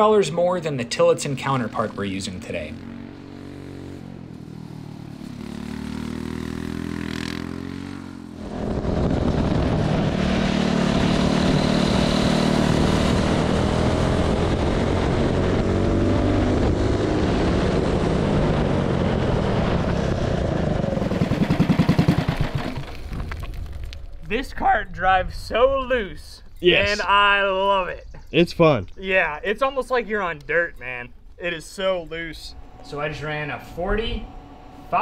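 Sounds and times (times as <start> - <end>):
distant kart engine: 0.0 - 23.1, 31.4 - 35.0
kart engine at full throttle: 1.5 - 23.0, 32.5 - 35.0
wind rush: 8.4 - 11.9, 13.1 - 21.6.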